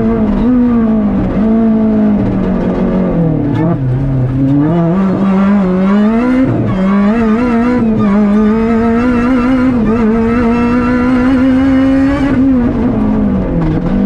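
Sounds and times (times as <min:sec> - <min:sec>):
car engine revving from cabin: 0:00.0 - 0:14.0.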